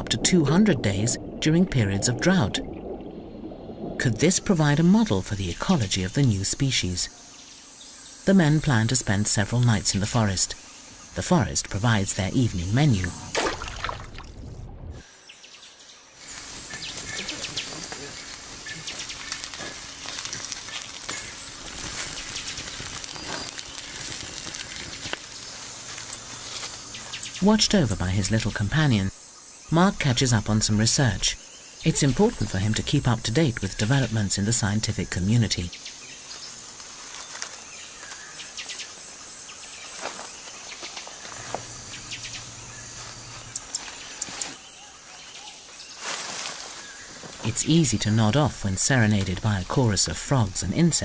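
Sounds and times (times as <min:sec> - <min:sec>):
high insect whine: 0:05.5 - 0:51.0
campfire crackling: 0:16.1 - 0:28.5, 0:31.2 - 0:51.0
frog chirps and calls: 0:40.7 - 0:45.6.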